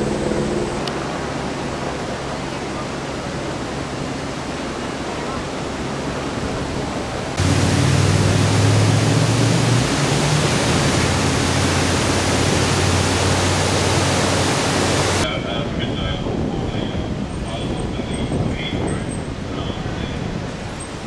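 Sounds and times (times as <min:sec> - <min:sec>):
floodwater pouring over ledge: 0:07.4 - 0:15.2.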